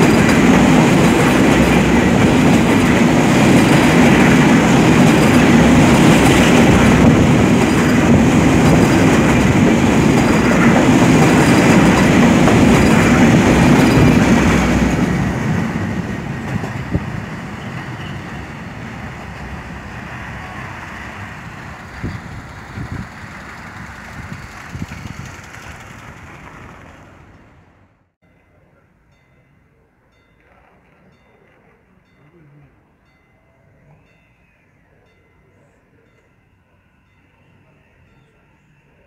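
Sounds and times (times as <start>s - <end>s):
train wheels rumbling on rails: 0.0s - 27.8s.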